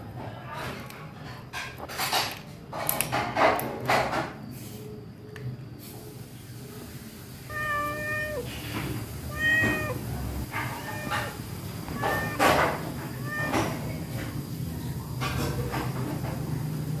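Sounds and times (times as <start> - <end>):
cat meowing: 7.4 - 14.2.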